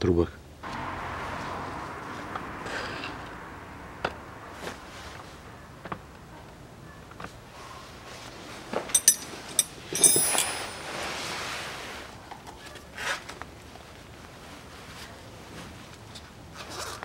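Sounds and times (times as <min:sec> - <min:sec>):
metal tools clinking: 0:08.9 - 0:11.2.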